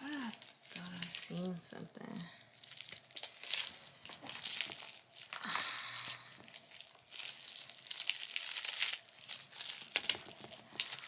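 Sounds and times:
packaging rustling and crinkling: 0:00.0 - 0:01.5, 0:02.5 - 0:11.0.

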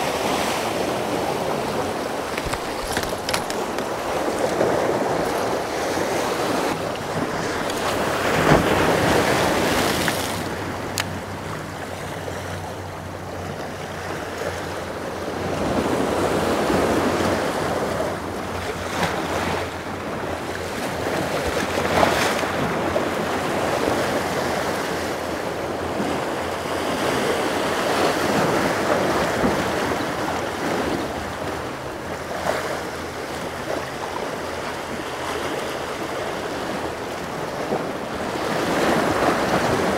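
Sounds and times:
surf washing against a jetty: 0:00.0 - 0:39.9.

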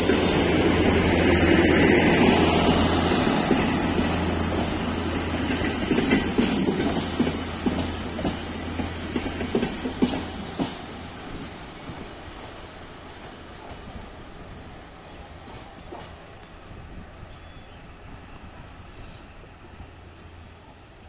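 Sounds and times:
train wheels clicking over rail joints: 0:00.0 - 0:14.7, 0:15.4 - 0:16.6.

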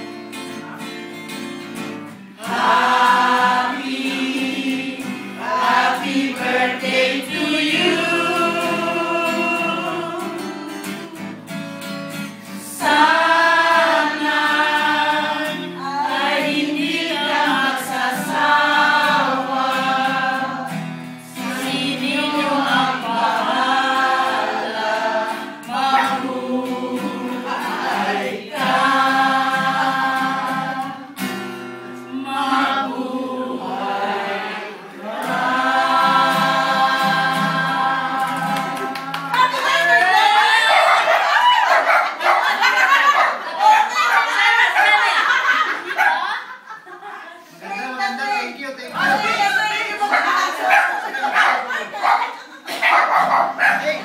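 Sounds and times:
acoustic guitar: 0:00.0 - 0:54.0
group of people singing: 0:02.0 - 0:48.2, 0:48.9 - 0:54.0.

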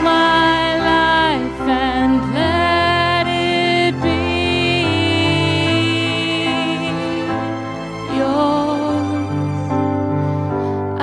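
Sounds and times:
woman singing with vibrato: 0:00.0 - 0:07.5, 0:08.1 - 0:09.4.

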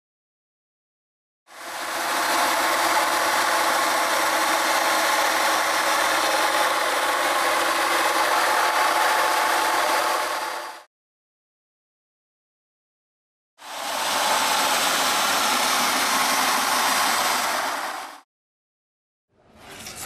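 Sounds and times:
polisher motor whine: 0:01.6 - 0:10.8.

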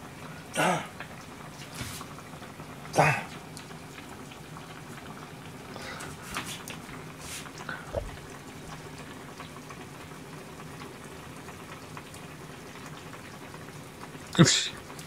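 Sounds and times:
pot simmering: 0:00.0 - 0:15.0
steady low hum: 0:07.7 - 0:08.8.

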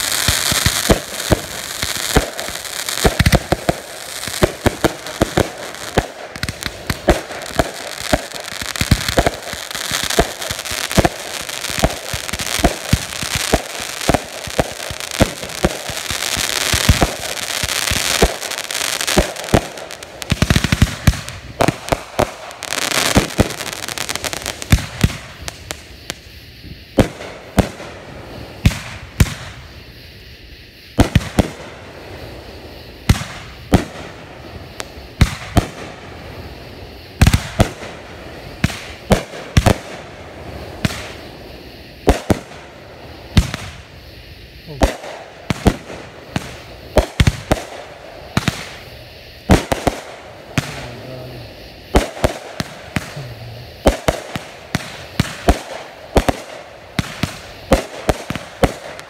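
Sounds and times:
firework shots bursting: 0:00.0 - 0:28.0, 0:37.2 - 0:40.2, 0:42.0 - 0:42.7, 0:44.6 - 0:59.0.

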